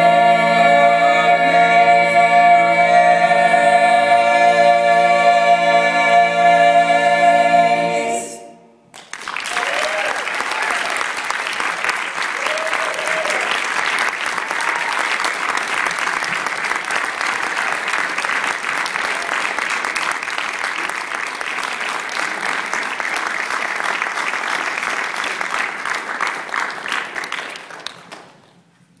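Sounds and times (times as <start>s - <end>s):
audience applauding: 8.9s - 28.6s.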